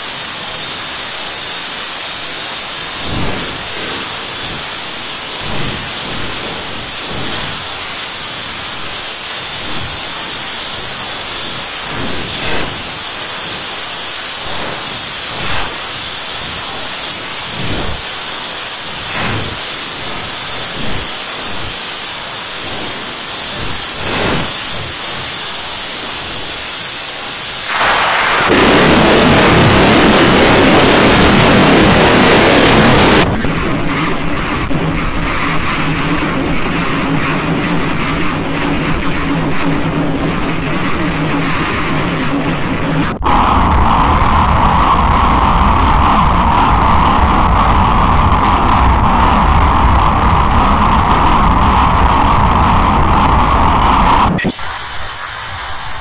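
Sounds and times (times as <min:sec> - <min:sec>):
static-like hiss: 0:00.0 - 0:56.0
dull firework booms: 0:27.7 - 0:54.2.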